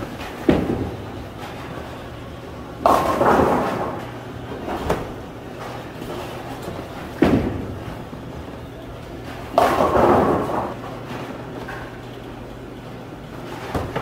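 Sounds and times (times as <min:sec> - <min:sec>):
bowling pins crashing: 0:00.0 - 0:01.8, 0:02.8 - 0:08.1, 0:09.2 - 0:11.3
steady low hum: 0:00.0 - 0:14.0
bowling ball thudding onto lane: 0:02.8 - 0:04.0, 0:09.5 - 0:10.8.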